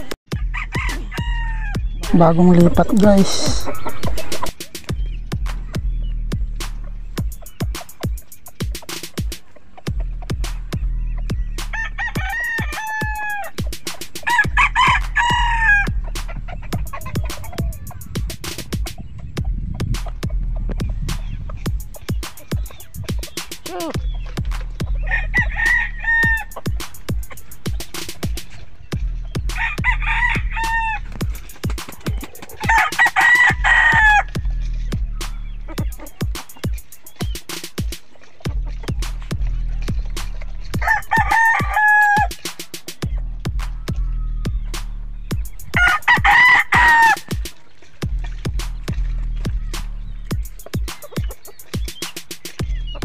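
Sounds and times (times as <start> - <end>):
background music with steady beat: 0.0 - 53.0
rooster crowing: 0.4 - 1.8, 11.7 - 13.6, 14.2 - 16.0, 25.0 - 26.5, 29.6 - 31.1, 32.6 - 34.4, 40.8 - 42.4, 45.8 - 47.3.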